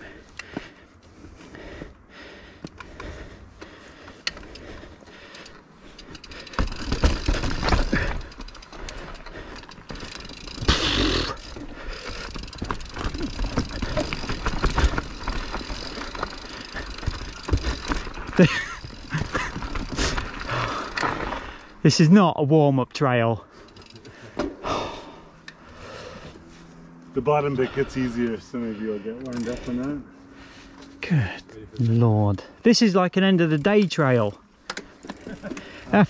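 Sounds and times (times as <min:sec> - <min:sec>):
bike knocking and rattling: 0:00.0 - 0:21.8, 0:23.5 - 0:26.1, 0:29.1 - 0:30.0, 0:33.4 - 0:36.0
bike tyres over rocks and roots: 0:00.0 - 0:32.5, 0:33.2 - 0:36.0.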